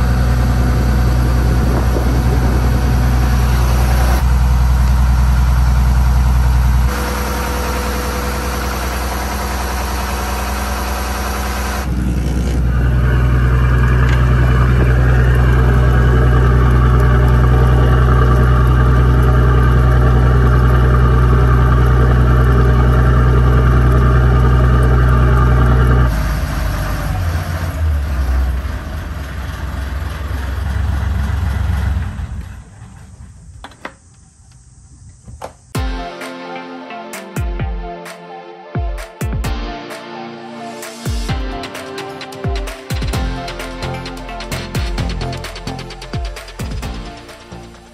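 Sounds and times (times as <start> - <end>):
diesel engine idling: 0.0 - 34.9.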